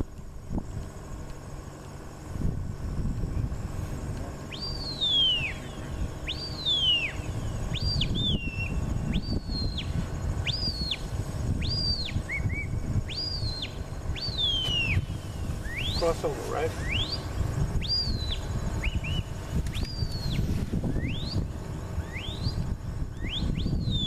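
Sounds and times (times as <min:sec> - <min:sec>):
shepherd's whistle blasts: 0:04.5 - 0:11.0, 0:11.6 - 0:16.1, 0:22.0 - 0:24.0.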